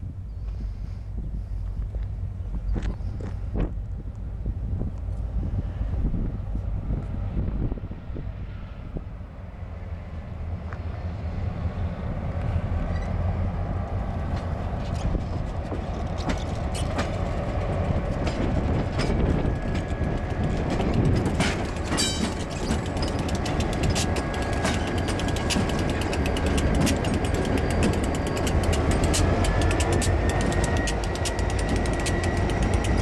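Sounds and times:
diesel locomotive engine rumble: 0.0s - 33.0s
train wheels clicking over rails: 12.3s - 33.0s
faint steady squeal: 12.8s - 13.4s, 23.8s - 33.0s.

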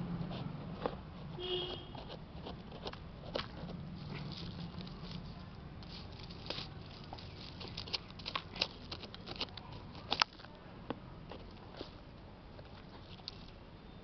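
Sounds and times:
metal tool scraping dry soil: 0.4s - 10.3s.

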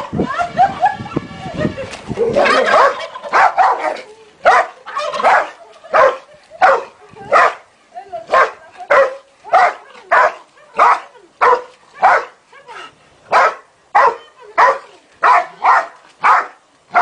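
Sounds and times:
dog barking: 2.7s - 7.6s, 8.3s - 12.3s, 13.3s - 17.0s.

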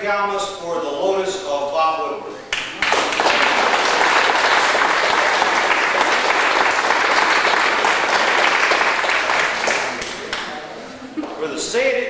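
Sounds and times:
people applauding: 2.5s - 10.7s.

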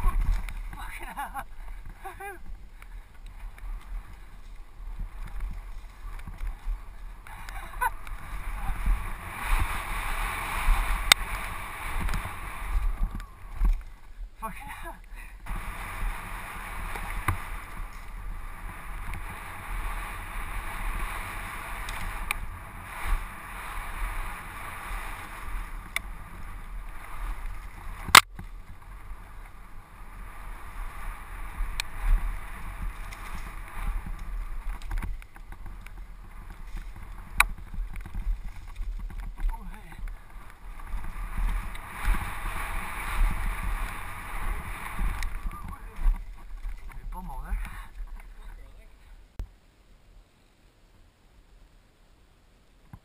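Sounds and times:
wind and tyre noise: 0.0s - 53.0s
bike clacking over bumps: 15.4s - 47.8s.

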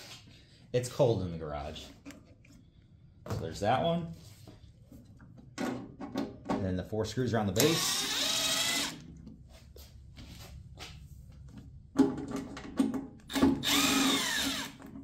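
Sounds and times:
impact driver motor: 7.6s - 9.0s, 13.3s - 15.0s.

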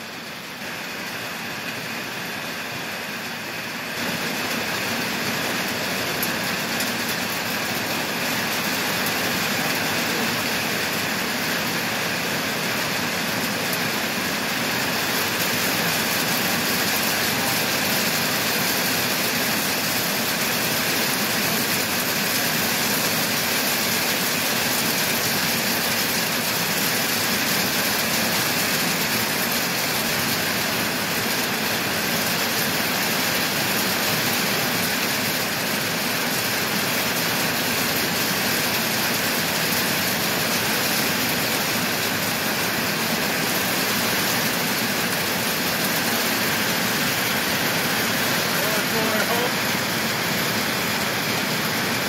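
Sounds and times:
heavy rain on foliage: 0.0s - 52.0s.

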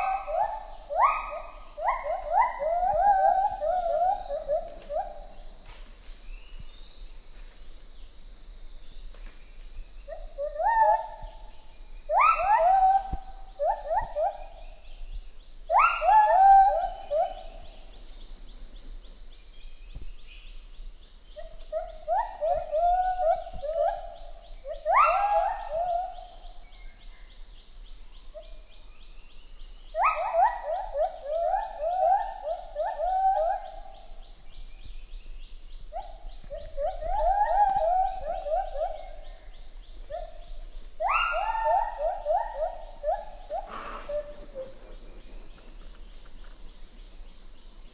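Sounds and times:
gibbons hooting: 41.0s - 44.7s.

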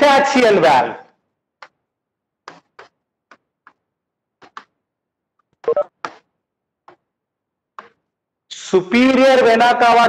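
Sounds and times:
chalk tapping on a chalkboard: 2.4s - 3.8s, 4.4s - 4.8s.

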